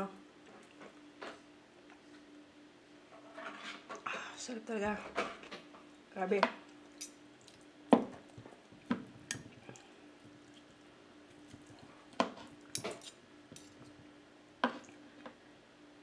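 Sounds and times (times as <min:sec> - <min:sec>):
faint steady hum: 0:00.0 - 0:16.0
cutlery clinking on a plate: 0:12.8 - 0:13.8.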